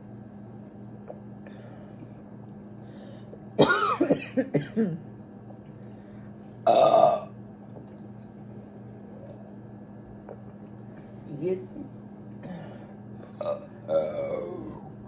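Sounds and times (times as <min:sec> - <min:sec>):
person burping: 0:03.6 - 0:05.0, 0:06.6 - 0:07.4, 0:12.4 - 0:15.0.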